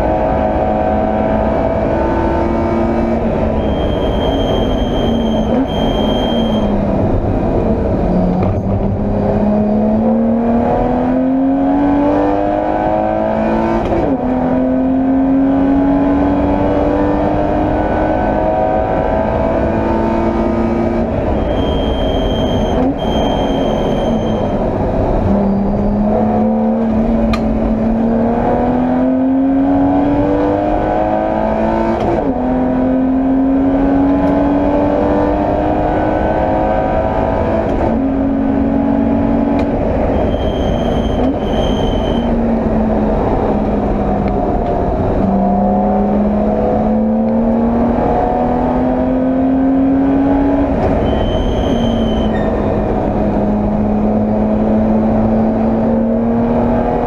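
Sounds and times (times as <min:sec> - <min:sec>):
racing engine accelerating: 0:00.0 - 0:57.0
short high electronic beeps: 0:03.6 - 0:06.8, 0:21.3 - 0:24.5, 0:40.2 - 0:42.3, 0:51.0 - 0:52.6.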